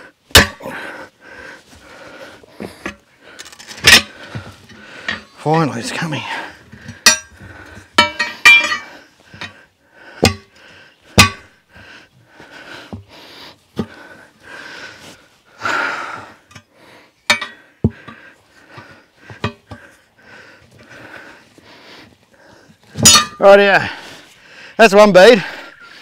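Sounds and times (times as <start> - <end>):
man breathing heavily: 0.0 - 23.0, 23.7 - 26.0
tyre irons clanking on rim: 2.7 - 6.1, 6.8 - 9.6, 11.2 - 11.5, 17.3 - 19.9, 23.0 - 23.4.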